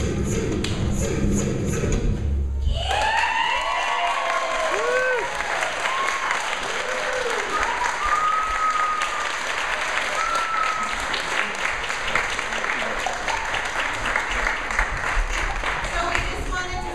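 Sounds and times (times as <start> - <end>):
whoops and voices: 2.6 - 9.2, 10.1 - 10.9
audience applauding: 2.8 - 16.9.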